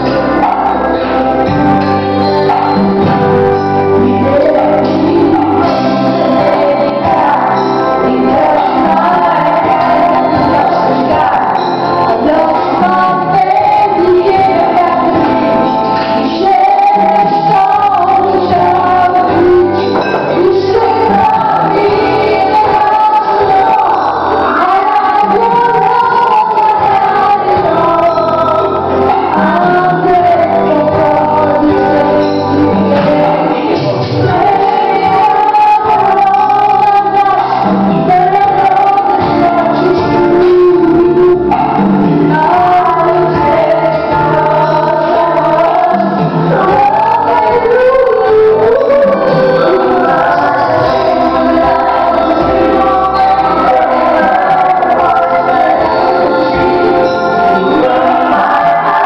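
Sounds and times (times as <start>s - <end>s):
backing track music: 0.0s - 59.0s
woman singing karaoke: 0.0s - 59.0s.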